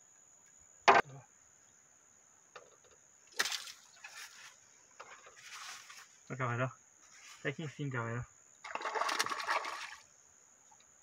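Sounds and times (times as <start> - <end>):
insects droning: 0.0 - 11.0
small water splashes: 3.3 - 4.2, 8.6 - 10.1.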